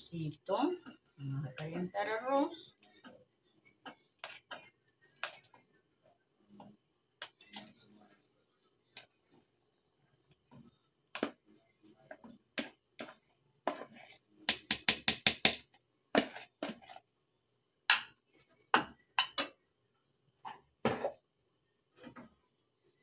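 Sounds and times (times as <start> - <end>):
utensil knocking on metal pan: 14.5 - 15.6.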